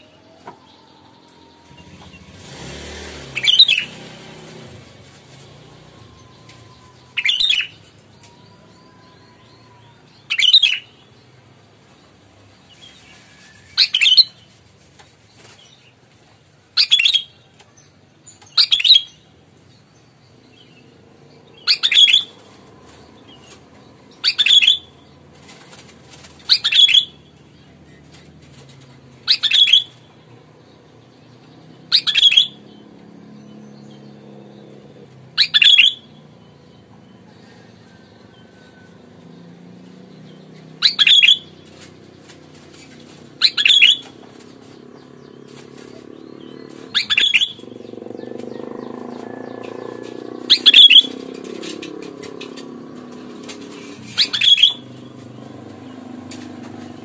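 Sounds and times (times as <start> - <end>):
bulbul calling: 3.3 - 4.0, 6.0 - 11.0, 21.4 - 25.0, 26.4 - 27.4, 29.2 - 30.2, 31.9 - 32.8, 35.4 - 36.4, 40.4 - 41.9, 43.4 - 56.8.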